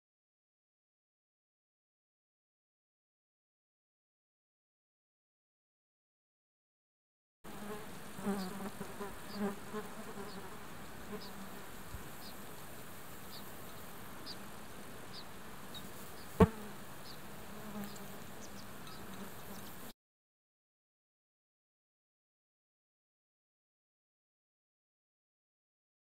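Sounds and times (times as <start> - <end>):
flying insect buzzing: 7.5 - 12.3, 15.7 - 19.9.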